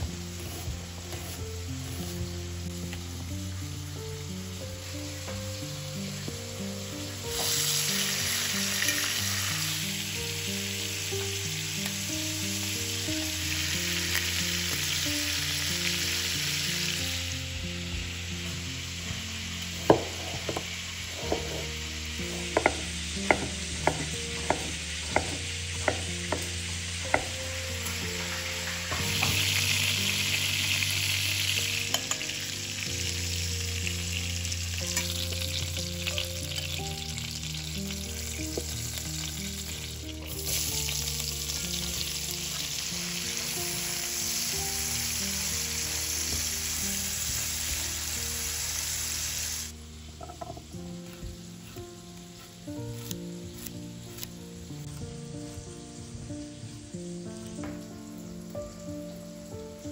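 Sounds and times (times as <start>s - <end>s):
chicken sizzling in frying pan: 0.0s - 59.9s
onions sizzling while stirred: 0.0s - 59.9s
knife chopping on wooden board: 19.9s - 20.6s, 22.5s - 26.4s.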